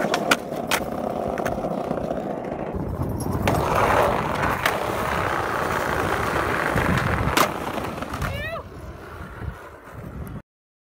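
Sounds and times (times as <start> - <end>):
skateboard click: 0.0 - 8.4
skateboard wheels rolling on concrete: 0.0 - 10.4.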